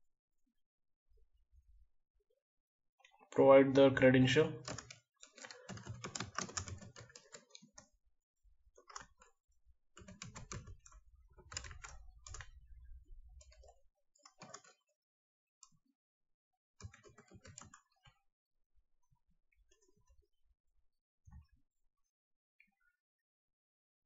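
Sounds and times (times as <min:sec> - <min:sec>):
typing on keyboard: 0:04.6 - 0:07.9, 0:08.8 - 0:09.3, 0:10.0 - 0:12.6, 0:13.4 - 0:14.8, 0:16.8 - 0:18.1.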